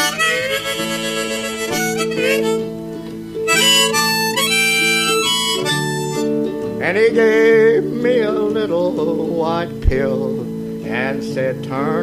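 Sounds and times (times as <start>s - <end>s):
person singing: 0.0s - 2.6s, 6.8s - 12.0s
harmonica playing: 0.0s - 8.6s
guitar accompaniment: 0.0s - 12.0s.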